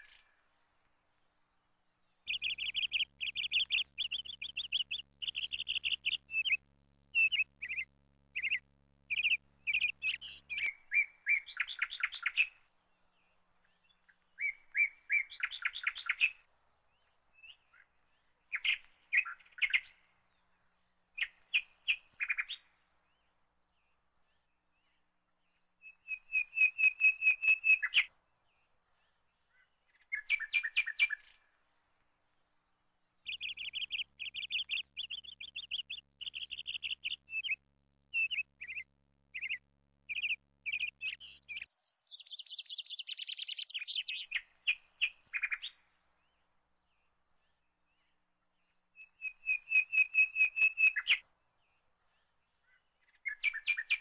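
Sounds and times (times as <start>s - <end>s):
nestling birds begging chirps: 1.9s - 54.0s.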